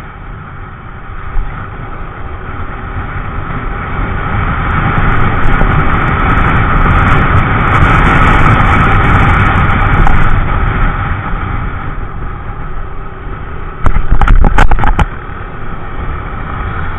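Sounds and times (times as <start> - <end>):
wind and road rush: 0.0 - 16.9
loud knocks and thumps: 13.8 - 15.1.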